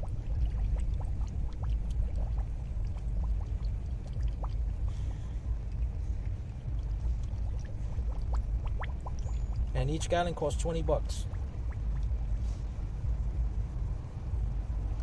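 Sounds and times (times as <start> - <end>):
liquid pouring from a jug: 0.0 - 9.8
steady low rumble: 0.0 - 15.0.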